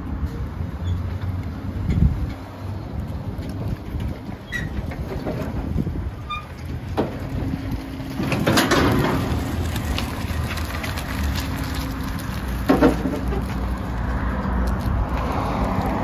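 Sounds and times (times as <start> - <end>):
distant traffic: 0.0 - 16.0
wind buffeting microphone: 1.5 - 16.0
wind on microphone: 1.8 - 6.4.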